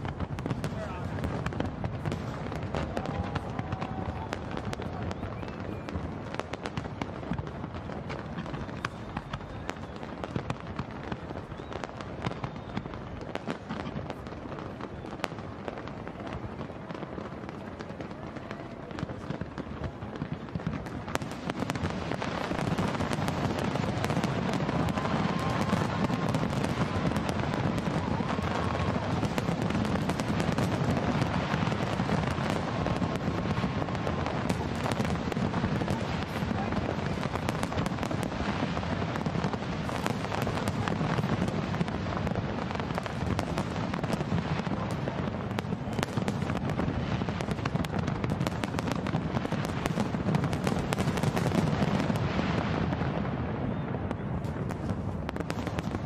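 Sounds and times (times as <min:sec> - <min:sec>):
fireworks booming and crackling: 0:00.0 - 0:56.0
faint whistling tone: 0:05.0 - 0:06.0, 0:11.4 - 0:13.0.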